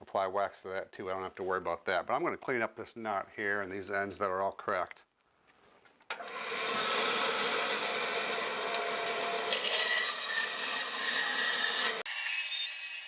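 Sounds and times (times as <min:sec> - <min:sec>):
bandsaw cutting log: 0:06.2 - 0:13.0.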